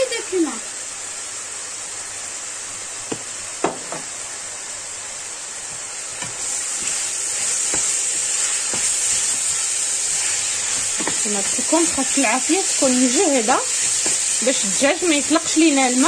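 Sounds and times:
food sizzling in a pan: 0.0s - 16.0s
wooden spoon stirring: 6.3s - 16.0s.

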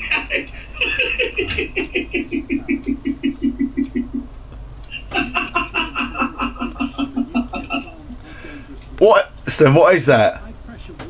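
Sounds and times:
man laughing hard: 0.0s - 4.2s, 4.9s - 8.1s.

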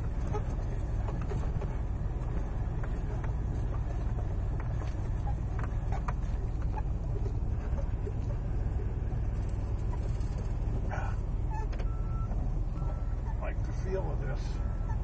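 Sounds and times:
truck engine rumbling: 0.0s - 15.0s
small clicks and rattles: 9.3s - 10.8s.

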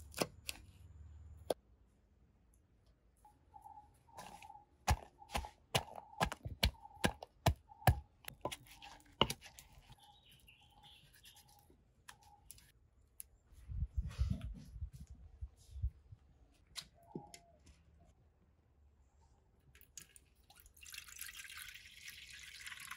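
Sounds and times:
pestle knocking in wooden mortar: 4.9s - 8.6s.

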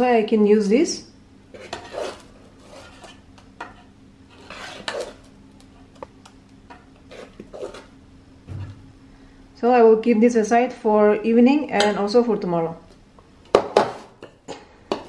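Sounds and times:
faint steady hum: 0.0s - 15.0s
spoon scraping metal pot: 1.5s - 5.2s, 7.1s - 7.9s.

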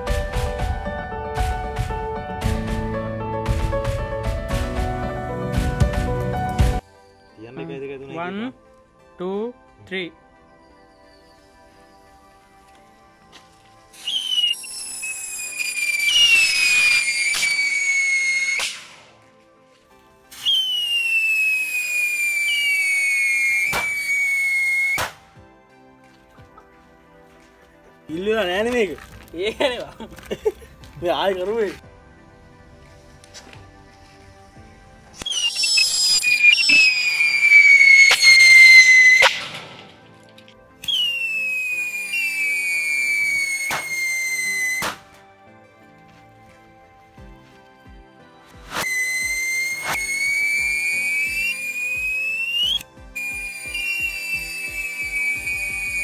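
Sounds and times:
firework rockets whistling: 14.0s - 19.1s, 20.3s - 25.2s, 35.2s - 40.0s, 40.8s - 45.1s, 48.6s - 56.0s
firework cracks: 14.1s - 19.1s, 20.3s - 25.3s, 35.2s - 40.0s, 40.8s - 45.2s.

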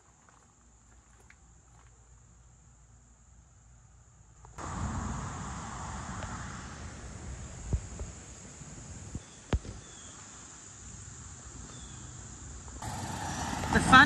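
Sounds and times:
high-pitched insect chorus: 4.0s - 14.0s.

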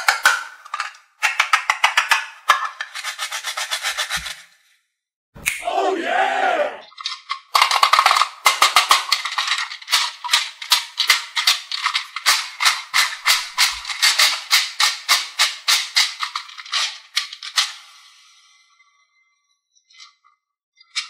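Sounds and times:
plastic puzzle clicking: 0.0s - 3.3s, 6.9s - 17.8s
balls rattling inside: 7.0s - 17.6s.

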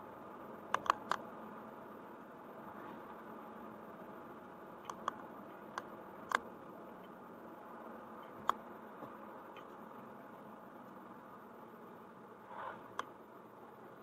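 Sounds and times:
car road and cabin noise: 0.0s - 14.0s
sharp ticks: 0.7s - 1.2s, 4.8s - 6.4s.

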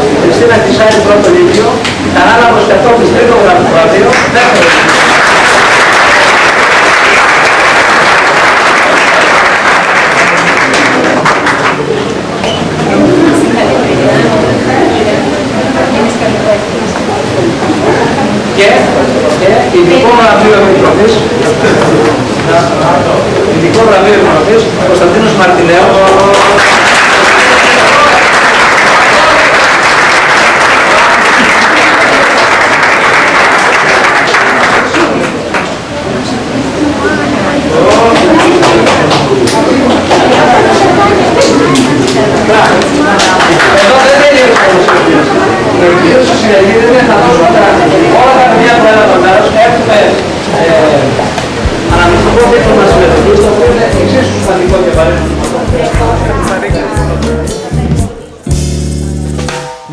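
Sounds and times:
audience applauding: 4.0s - 12.1s, 25.9s - 35.7s, 37.8s - 41.0s, 41.7s - 45.6s.

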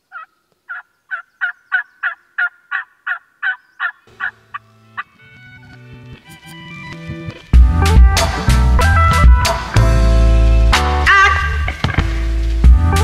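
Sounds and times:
wild turkey yelping: 0.1s - 5.2s
music: 4.1s - 13.0s.

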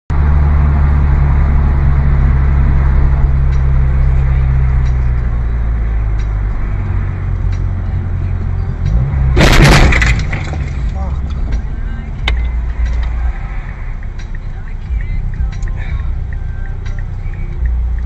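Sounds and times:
car engine and tyres droning: 0.1s - 18.0s
loud vehicle collision crash: 9.3s - 11.0s.

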